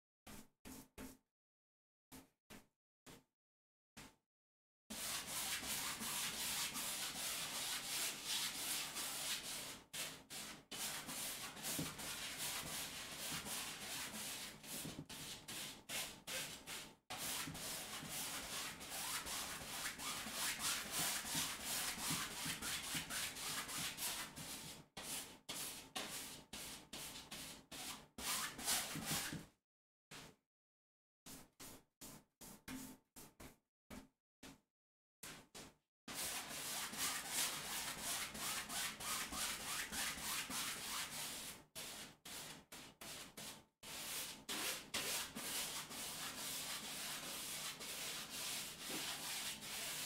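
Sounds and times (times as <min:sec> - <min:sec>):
paintbrush scrubbing canvas: 0:04.9 - 0:29.4, 0:36.1 - 0:50.0.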